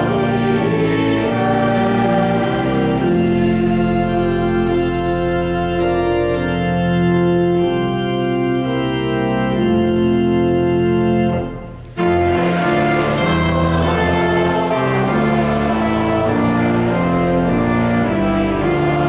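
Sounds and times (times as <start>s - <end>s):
organ playing a hymn: 0.0s - 19.0s.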